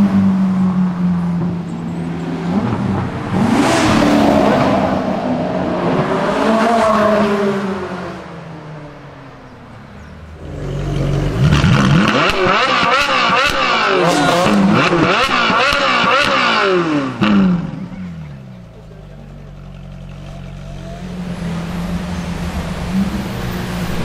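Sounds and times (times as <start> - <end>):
sports cars accelerating: 0.0 - 24.0
engine revving: 2.4 - 7.9, 10.3 - 18.4.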